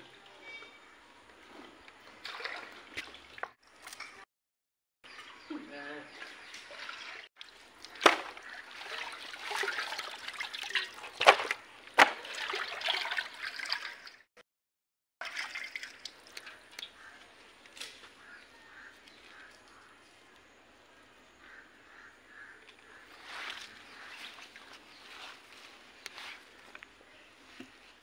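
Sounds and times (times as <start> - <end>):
water sloshing in a steel pot: 1.7 - 4.2, 6.1 - 14.3, 15.2 - 17.2.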